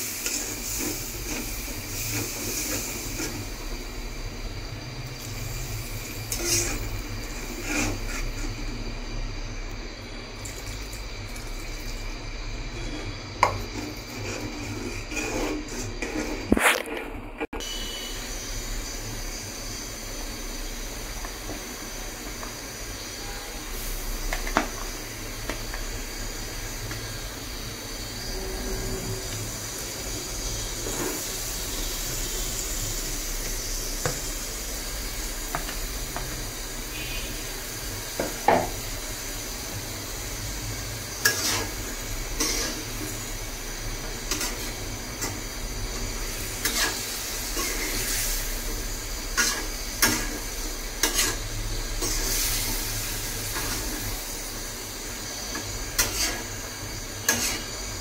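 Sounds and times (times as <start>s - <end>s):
curry sizzling in a pot: 0.0s - 17.0s, 17.6s - 58.0s
metal spatula scraping a pot: 7.6s - 8.6s, 13.7s - 17.0s, 41.2s - 41.8s, 51.0s - 51.4s, 57.2s - 57.7s.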